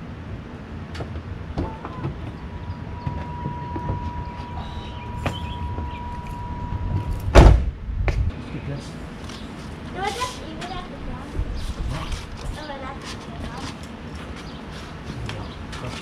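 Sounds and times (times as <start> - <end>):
car door warning tone: 1.6 - 7.5
car door slamming: 7.1 - 7.8.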